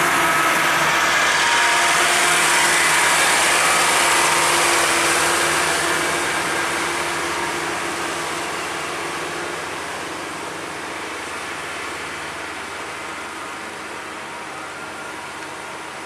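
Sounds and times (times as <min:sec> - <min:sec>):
truck passing: 0:00.0 - 0:16.0.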